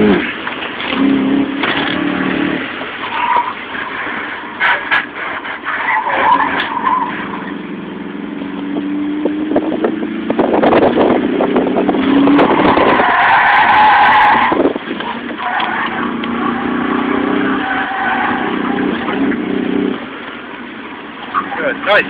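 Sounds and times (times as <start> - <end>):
tyres squealing: 0.0 - 7.6, 12.2 - 19.7, 21.2 - 22.0
car engine accelerating: 0.0 - 22.0.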